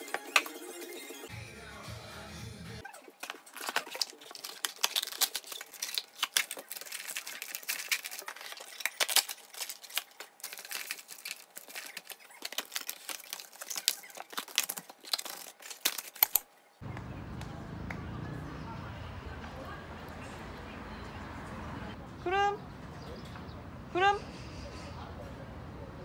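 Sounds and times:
packaging rustling and crinkling: 3.1s - 16.5s.

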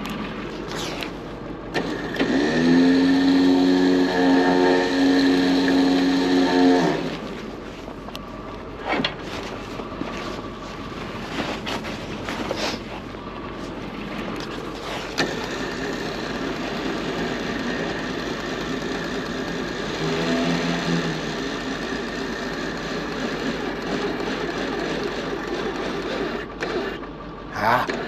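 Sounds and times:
hum of pitched tones: 0.0s - 8.6s, 15.2s - 23.2s
truck engine running: 0.0s - 28.0s.

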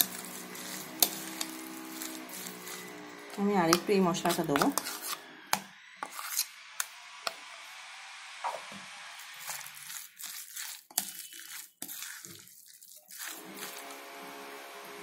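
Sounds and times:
moist crunching of stirred mixture: 0.0s - 5.2s, 9.2s - 14.9s.

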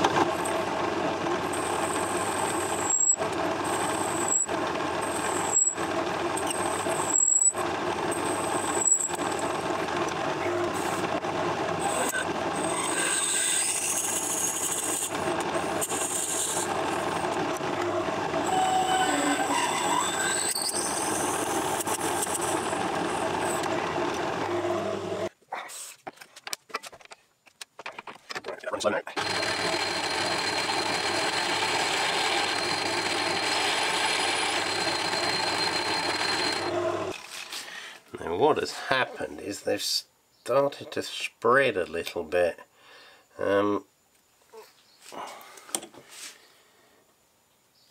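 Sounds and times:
metal lathe humming: 0.0s - 25.3s, 29.2s - 37.2s
high squeals from drill cutting: 1.5s - 5.8s, 6.4s - 9.2s, 11.8s - 15.1s, 15.8s - 16.7s, 18.4s - 23.6s, 29.2s - 37.0s.

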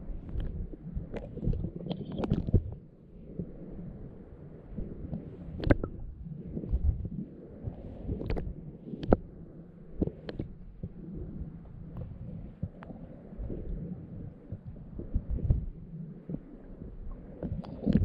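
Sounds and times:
underwater low rumble: 0.0s - 18.0s
sharp underwater clicks: 0.2s - 2.7s, 5.1s - 6.0s, 7.7s - 9.2s, 17.1s - 18.0s.

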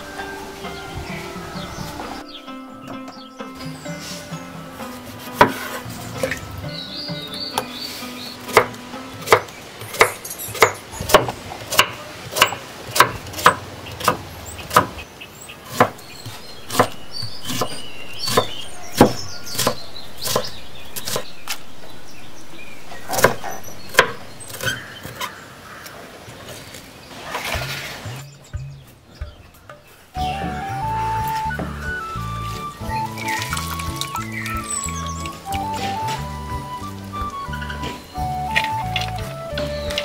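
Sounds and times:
knife chopping on wooden board: 5.2s - 6.4s, 8.5s - 15.0s, 15.7s - 21.3s.

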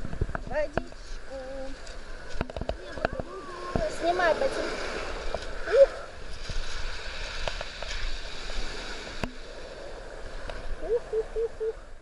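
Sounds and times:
waves washing over pebbles: 0.0s - 12.0s.

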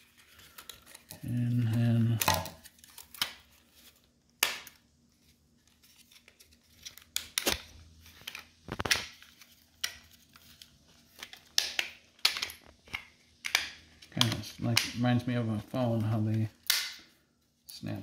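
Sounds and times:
plastic clips snapping: 11.2s - 14.9s.

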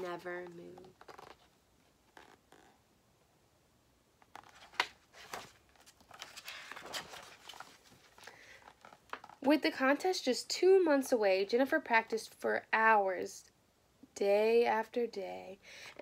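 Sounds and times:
page turning: 0.0s - 1.5s, 4.2s - 9.4s.

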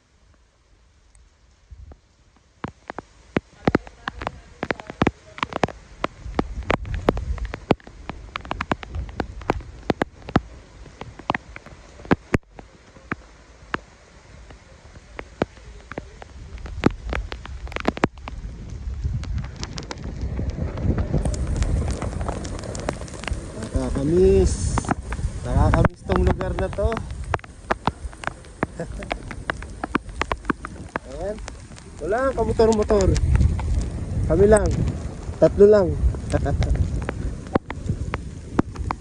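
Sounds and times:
raindrops striking close: 0.0s - 39.0s
low rumble: 15.8s - 39.0s.

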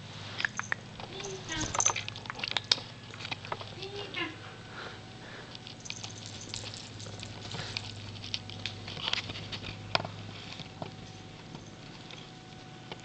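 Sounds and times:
low steady hum: 0.0s - 13.0s
scratching on fabric cat tree: 5.7s - 12.8s.

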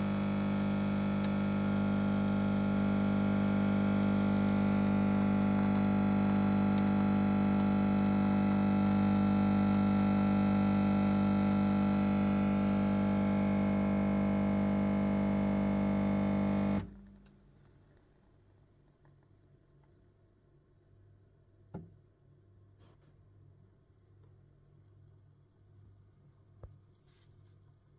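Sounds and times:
coffee machine humming: 0.0s - 17.0s.

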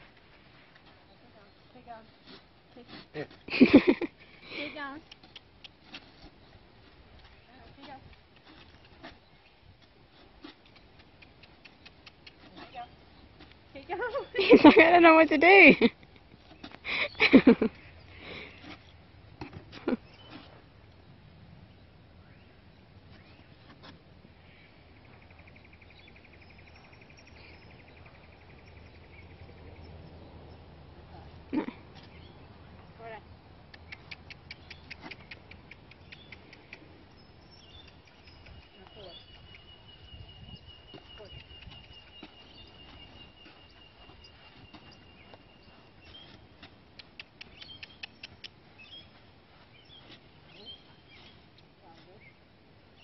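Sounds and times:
faint outdoor background noise: 0.0s - 53.0s
faint bird chirps: 33.8s - 51.5s
sharp high clicks: 46.9s - 48.6s.

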